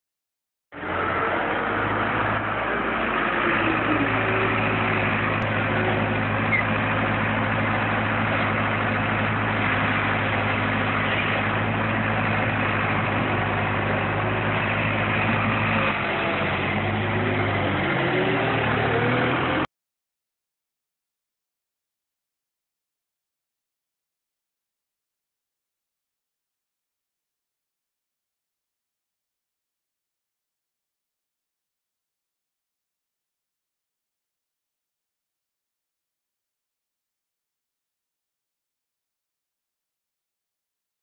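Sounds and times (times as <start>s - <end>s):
garbage truck engine running: 0.8s - 19.7s.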